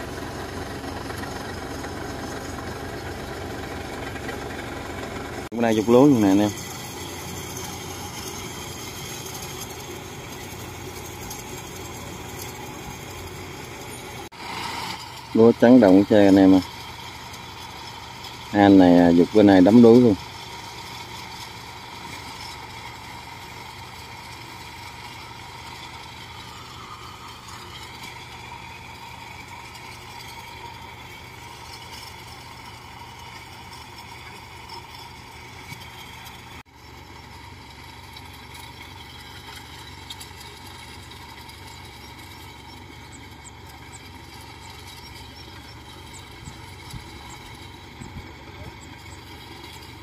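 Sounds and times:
engine idling: 0:00.0 - 0:50.0.

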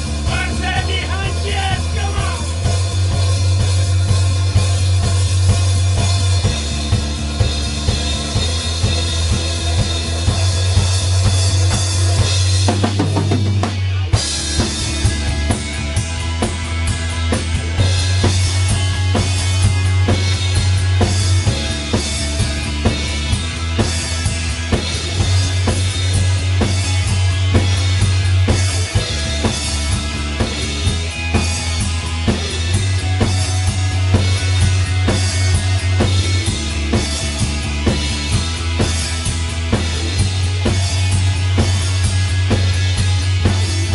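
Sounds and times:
drum kit beat: 0:00.0 - 0:43.9
electric guitars: 0:00.0 - 0:43.9.

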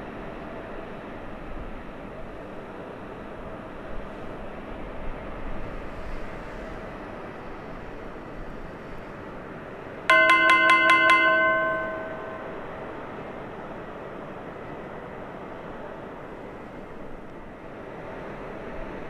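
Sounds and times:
bright bell-like chime: 0:10.1 - 0:12.7.

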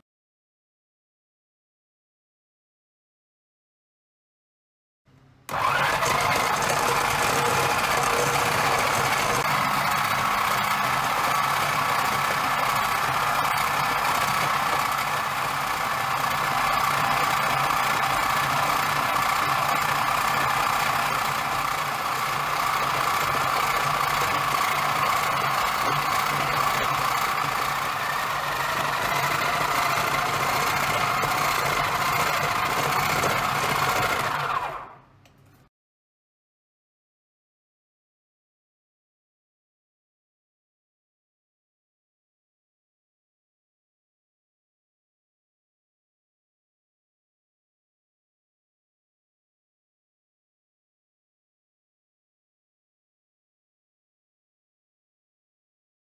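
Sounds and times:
food processor motor running: 0:05.5 - 0:35.2.

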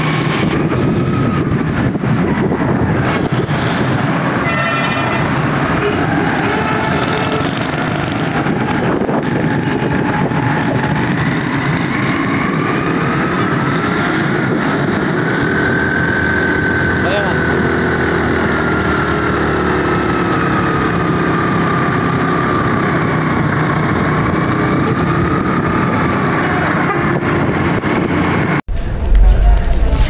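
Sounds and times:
heavy rushing noise: 0:00.0 - 0:18.8, 0:27.4 - 0:30.0.

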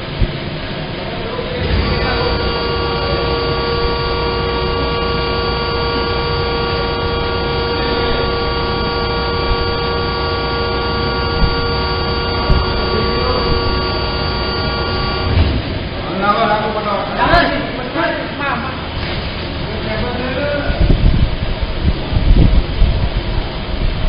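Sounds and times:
hydraulic pump whine: 0:00.0 - 0:16.8
low machine hum: 0:00.0 - 0:24.0.

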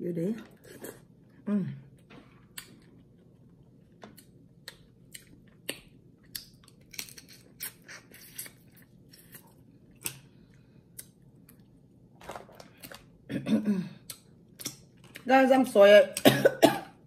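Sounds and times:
mouth smacking and chewing: 0:02.5 - 0:10.2, 0:14.0 - 0:15.2.

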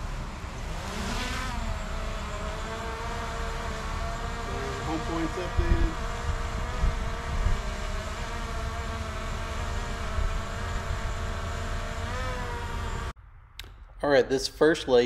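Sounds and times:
drone propellers whining: 0:00.0 - 0:13.2
wind rumble on microphone: 0:04.7 - 0:09.3.

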